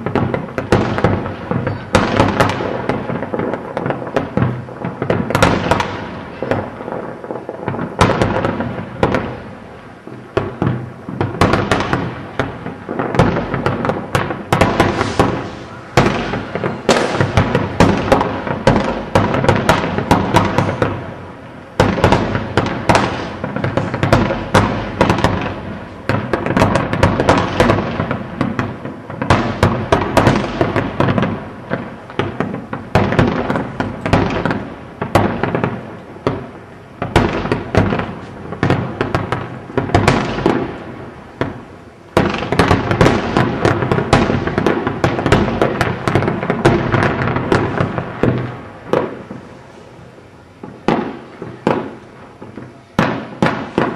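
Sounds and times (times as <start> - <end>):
fireworks bangs and crackling: 0.0 - 53.9.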